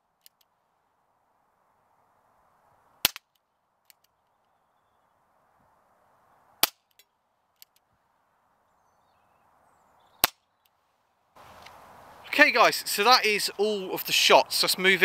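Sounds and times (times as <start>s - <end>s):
air pistol shots: 3.0s - 3.3s.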